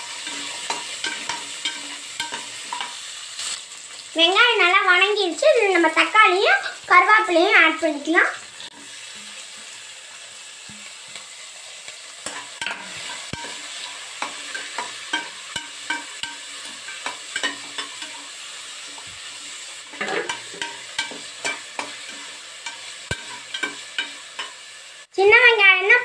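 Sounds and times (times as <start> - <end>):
metal spatula scraping a pan: 0.0 - 3.6, 12.2 - 24.9
vegetables sizzling in hot oil: 0.0 - 26.0.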